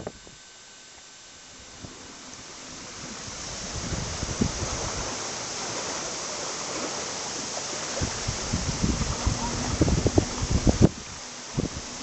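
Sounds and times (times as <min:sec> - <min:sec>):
seawater rushing: 0:01.3 - 0:12.0
wind buffeting microphone: 0:01.6 - 0:05.3, 0:07.9 - 0:12.0.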